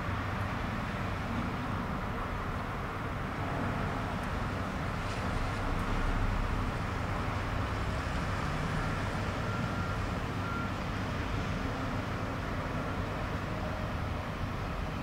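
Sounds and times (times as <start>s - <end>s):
diesel engine low rumble: 0.0s - 15.0s.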